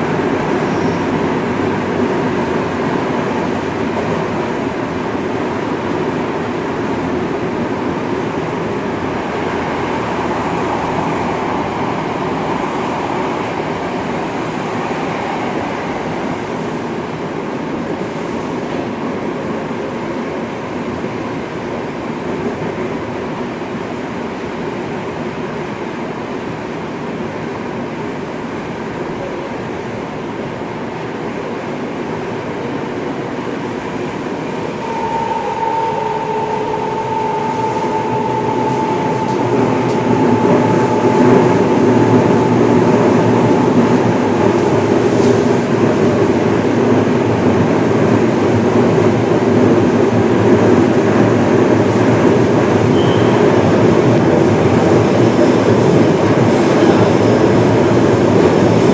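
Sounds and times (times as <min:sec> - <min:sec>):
subway train rumbling in tunnel: 0:00.0 - 0:58.9.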